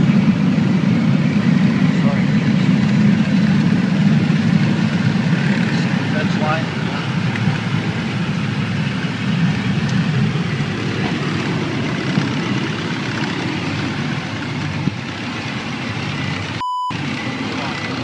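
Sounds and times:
plane cabin engine and airflow drone: 0:00.0 - 0:18.0
short high beep: 0:16.6 - 0:17.0.

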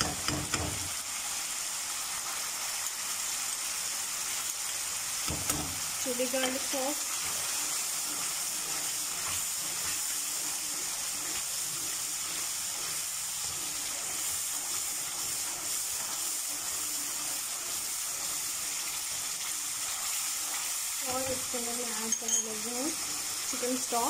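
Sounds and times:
sauce sizzling in wok: 0:00.0 - 0:24.0
metal spoon stirring: 0:22.0 - 0:22.6.

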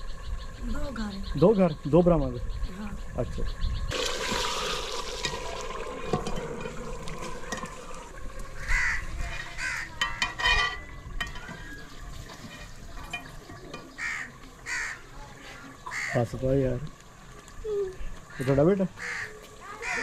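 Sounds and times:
metal ladle stirring in pot: 0:03.9 - 0:14.0
crow cawing: 0:08.5 - 0:10.3, 0:13.9 - 0:16.3, 0:18.3 - 0:20.0.

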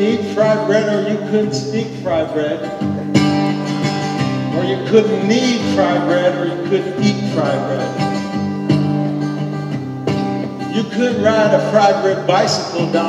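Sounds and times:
acoustic guitar strumming: 0:00.0 - 0:13.0
person vocalizing wordlessly: 0:10.9 - 0:13.0.

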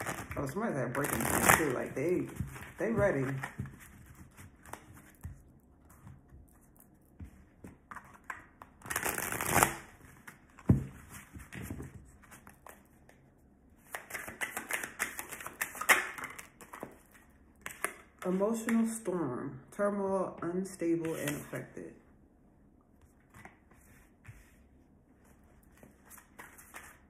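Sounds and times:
cards being shuffled: 0:00.0 - 0:12.8, 0:13.8 - 0:18.8.

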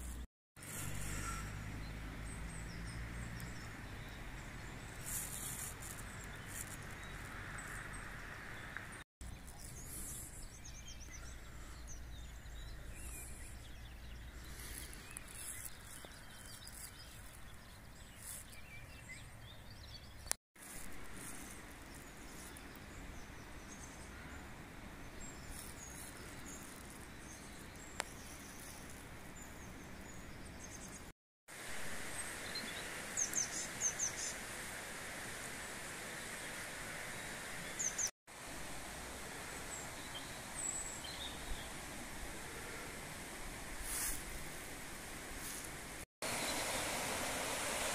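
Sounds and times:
small birds chirping: 0:00.0 - 0:31.6, 0:32.2 - 0:34.4
background hiss: 0:31.5 - 0:47.9.

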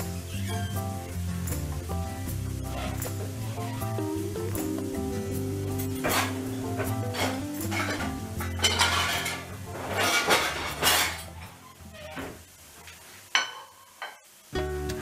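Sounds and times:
background music: 0:00.0 - 0:11.9, 0:14.6 - 0:15.0
utensils clinking against frying pan: 0:05.8 - 0:11.4, 0:13.3 - 0:14.8.

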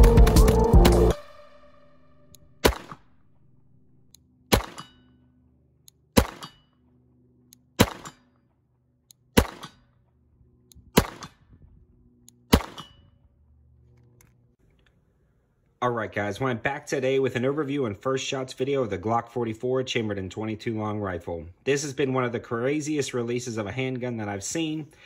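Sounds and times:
pistol shots with echo: 0:02.6 - 0:03.1, 0:04.5 - 0:05.0, 0:06.2 - 0:06.6, 0:07.8 - 0:08.2, 0:09.4 - 0:09.8, 0:11.0 - 0:11.3, 0:12.5 - 0:12.9.

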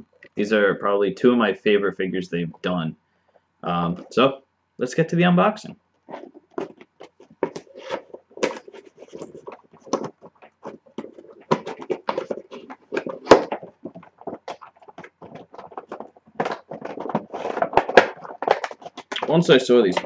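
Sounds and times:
cardboard packaging crinkling and tearing: 0:06.1 - 0:19.4.

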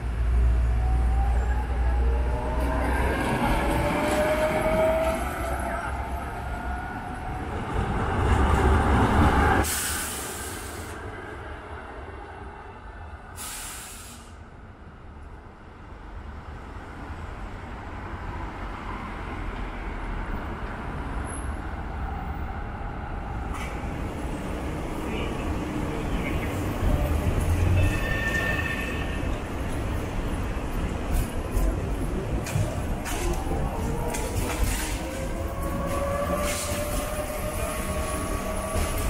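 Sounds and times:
distant tram rolling: 0:00.0 - 0:09.7, 0:15.9 - 0:39.0
street traffic rumble: 0:00.0 - 0:39.0
tram passing close: 0:00.0 - 0:39.0
short hisses: 0:13.4 - 0:14.4.

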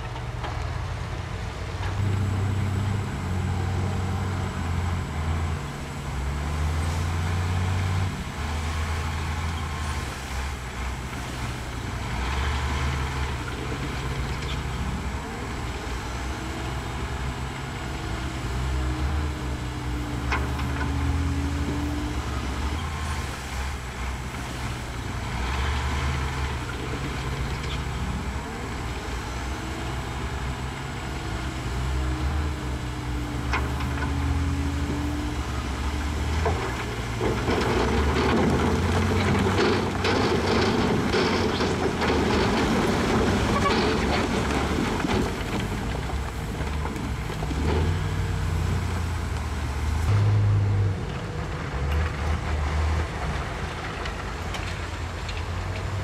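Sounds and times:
diesel truck engine running: 0:00.0 - 0:56.0
rocks sliding and clattering: 0:36.1 - 0:49.5.

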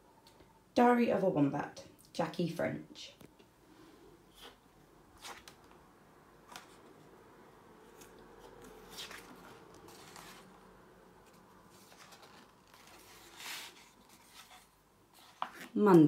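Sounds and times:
book pages turning: 0:04.3 - 0:04.6, 0:05.2 - 0:16.0.

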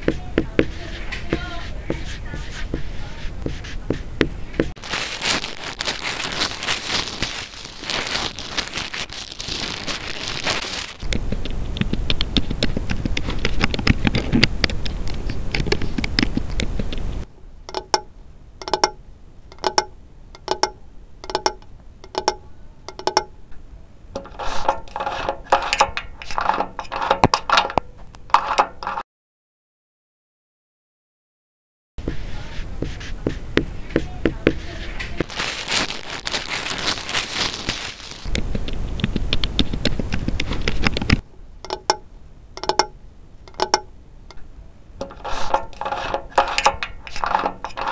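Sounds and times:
dense crackling and scraping: 0:00.0 - 0:18.0, 0:24.2 - 0:29.0, 0:32.0 - 0:42.0, 0:42.6 - 0:42.9, 0:45.0 - 0:47.9
rattle of pitched knocks: 0:17.7 - 0:23.4, 0:41.6 - 0:44.4
ringing pitched knocks: 0:17.7 - 0:23.4, 0:41.6 - 0:43.9.

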